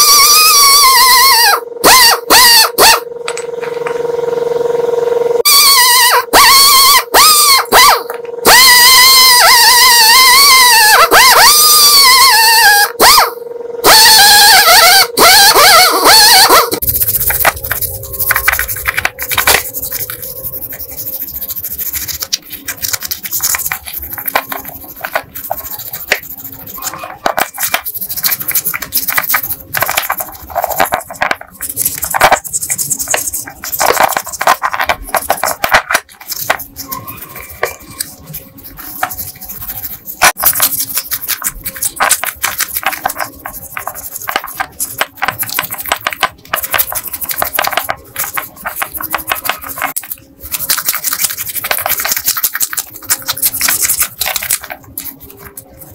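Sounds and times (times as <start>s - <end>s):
brush scraping metal: 16.5s - 55.9s.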